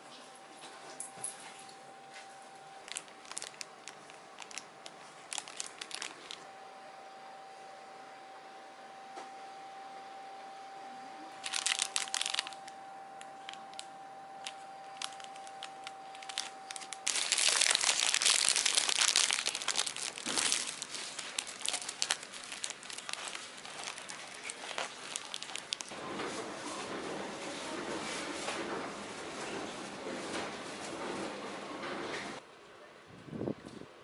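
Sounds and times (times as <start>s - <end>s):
cellophane wrapping crinkling: 2.7s - 6.5s, 11.4s - 26.0s.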